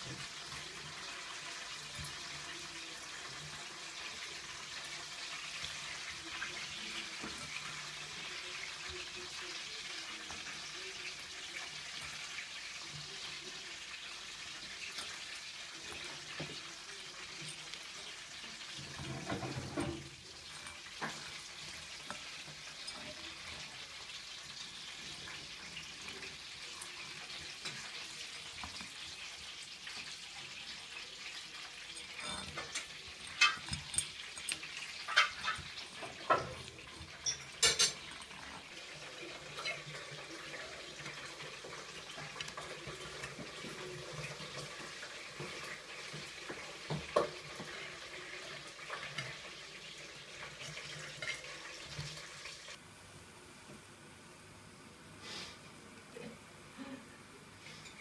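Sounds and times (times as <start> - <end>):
crayfish shells scraping on china: 32.0 - 38.0.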